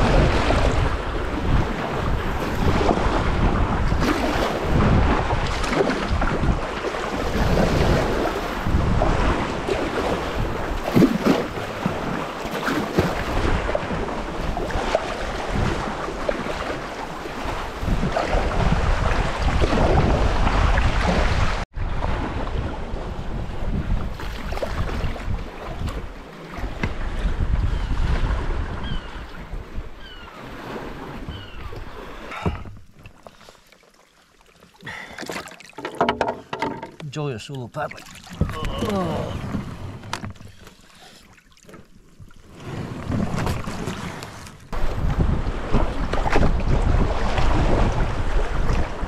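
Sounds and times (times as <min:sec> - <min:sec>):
wind buffeting microphone: 0:00.0 - 0:12.2, 0:13.0 - 0:33.0, 0:42.9 - 0:49.0
water sloshing against kayak hull: 0:00.0 - 0:49.0.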